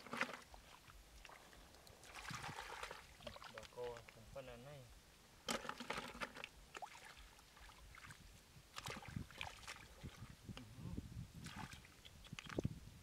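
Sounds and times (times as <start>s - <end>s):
small water splashes and drips: 0.0s - 4.2s, 5.8s - 10.3s, 11.4s - 12.7s.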